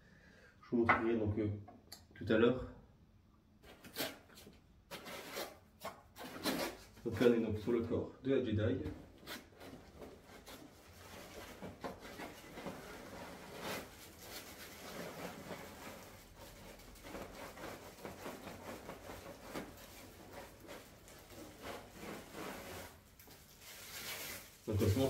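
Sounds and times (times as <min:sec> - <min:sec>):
packaging rustling: 0:09.2 - 0:25.0.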